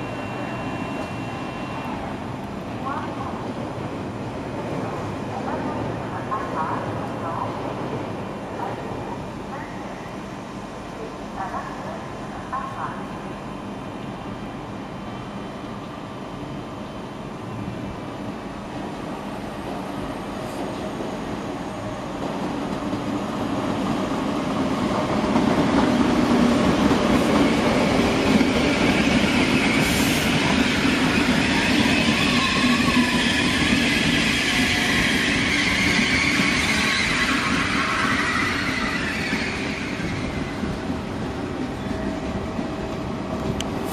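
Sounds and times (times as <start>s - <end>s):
train running on tracks: 0.0s - 43.9s
high wheel squeal: 30.8s - 40.4s.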